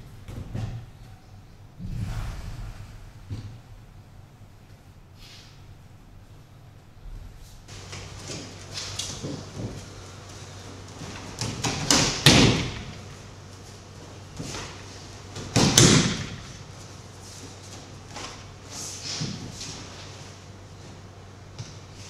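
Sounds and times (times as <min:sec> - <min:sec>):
slapping thuds on mats: 0:11.1 - 0:13.0, 0:15.4 - 0:16.6.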